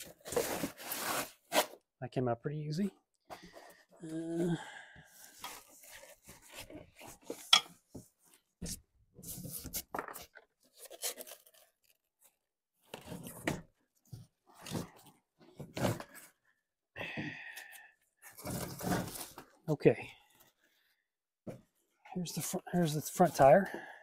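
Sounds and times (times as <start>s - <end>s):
packaging rustling and scraping: 0.0s - 1.8s, 9.2s - 13.6s, 18.2s - 19.5s.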